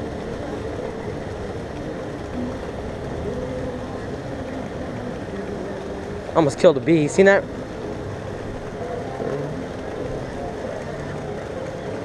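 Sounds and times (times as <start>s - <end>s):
distant voices: 0.0s - 12.0s
low harbour rumble: 0.0s - 12.0s.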